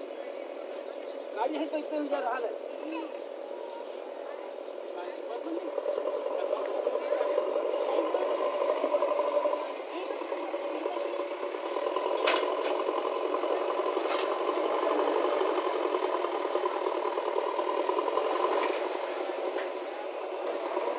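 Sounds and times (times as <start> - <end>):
diesel engine running under load: 0.0 - 20.9
machine rattling: 5.5 - 20.9.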